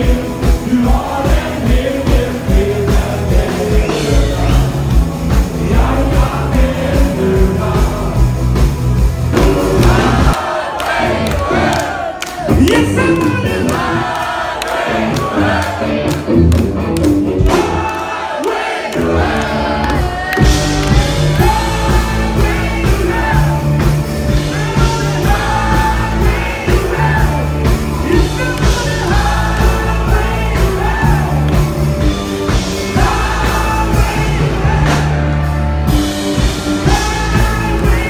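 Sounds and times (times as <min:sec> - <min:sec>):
live rock band: 0:00.0 - 0:38.0
person singing: 0:09.3 - 0:10.4, 0:17.4 - 0:38.0.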